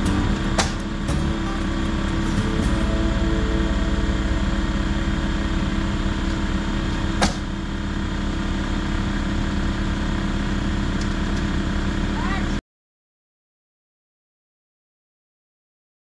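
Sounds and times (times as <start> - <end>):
engine running: 0.0 - 12.6.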